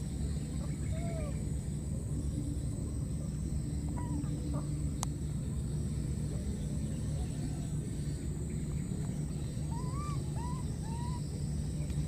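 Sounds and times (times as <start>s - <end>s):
steady low rumble: 0.0s - 12.0s
faint animal calls: 0.4s - 1.6s, 3.8s - 4.9s, 9.2s - 11.8s.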